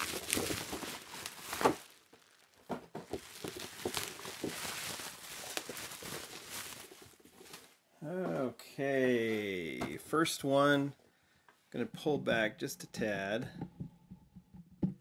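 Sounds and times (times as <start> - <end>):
cardboard packaging rustling: 0.0 - 7.8.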